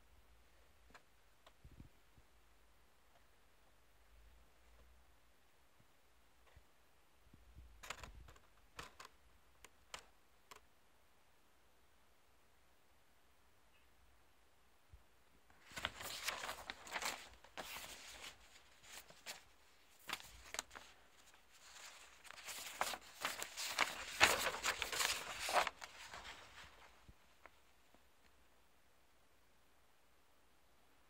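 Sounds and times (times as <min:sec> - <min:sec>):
paper rustling and crackling: 0:15.6 - 0:27.6.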